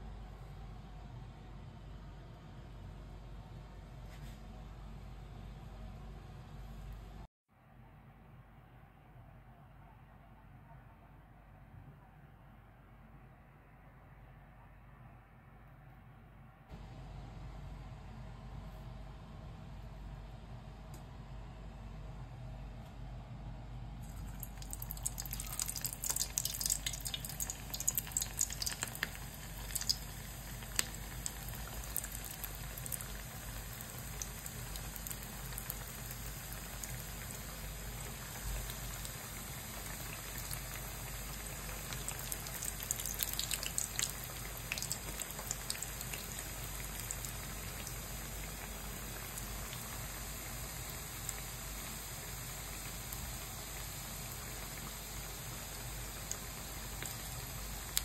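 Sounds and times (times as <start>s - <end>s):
hot oil sizzling and crackling: 24.0s - 58.0s.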